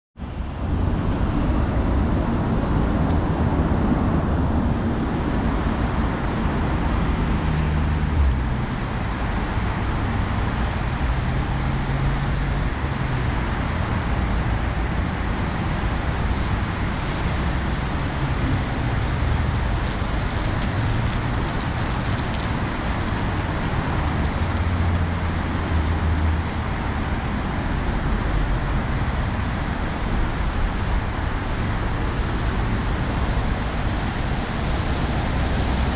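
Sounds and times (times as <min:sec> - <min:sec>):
road traffic rumble and hiss: 0:00.2 - 0:35.9.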